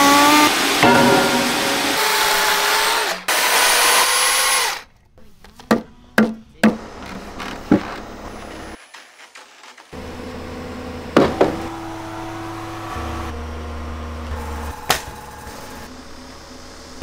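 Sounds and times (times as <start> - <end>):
low hum: 0.8 - 2.8
knocks on timber: 11.2 - 11.6.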